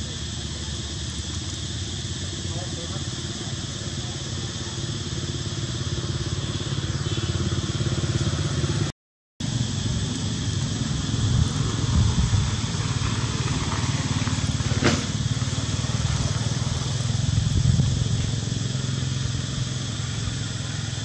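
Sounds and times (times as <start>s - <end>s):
high hiss: 0.0s - 21.0s.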